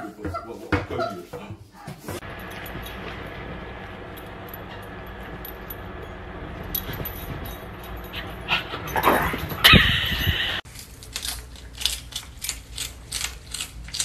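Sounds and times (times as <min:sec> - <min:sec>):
dog whining: 0:08.2 - 0:10.6.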